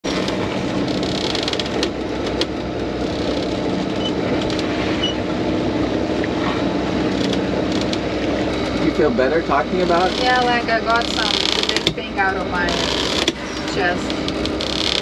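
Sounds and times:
boat engine running: 0.0 - 15.0
wind and water rushing: 1.7 - 11.2.

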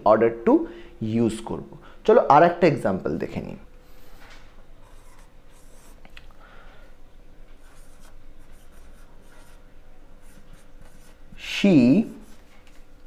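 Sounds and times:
marker scratching on whiteboard: 4.8 - 6.0, 7.6 - 12.8.

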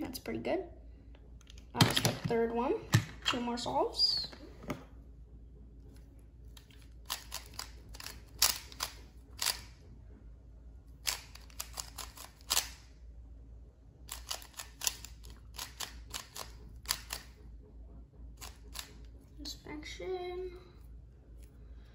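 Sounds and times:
speed cube layers clicking: 6.6 - 9.8, 11.0 - 12.8, 14.1 - 17.4, 18.4 - 19.0.

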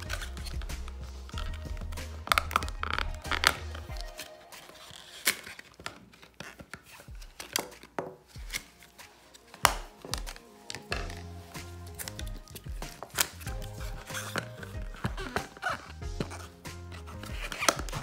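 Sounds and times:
plastic packaging clicks: 0.0 - 8.8, 9.4 - 16.0, 17.2 - 18.0
background music: 0.0 - 18.0
plastic crinkling: 0.0 - 18.0.

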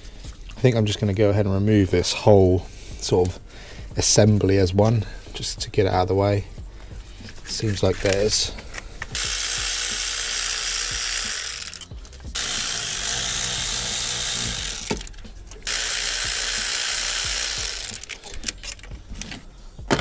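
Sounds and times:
power ratchet running: 9.1 - 18.9.

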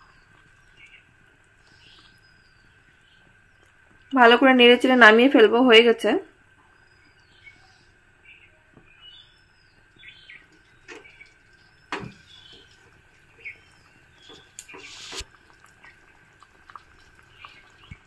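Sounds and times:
birds chirping: 0.0 - 4.3, 6.6 - 15.5
curry bubbling in a pan: 0.0 - 5.3, 6.3 - 18.0
short hiss: 14.6 - 15.3.

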